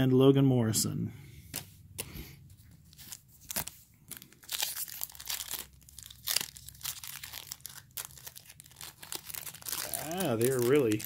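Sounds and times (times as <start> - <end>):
foil wrapper crinkling and tearing: 2.9 - 11.0.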